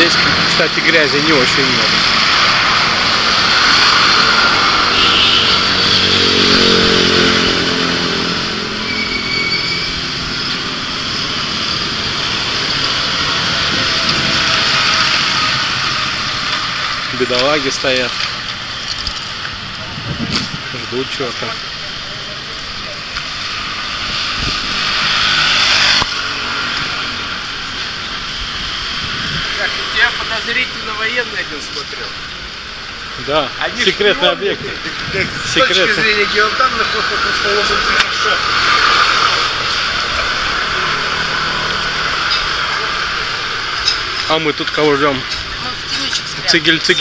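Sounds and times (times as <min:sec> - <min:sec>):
small motorbike engine passing: 0:00.0 - 0:16.8, 0:23.3 - 0:30.0
steady traffic hiss: 0:00.0 - 0:47.0.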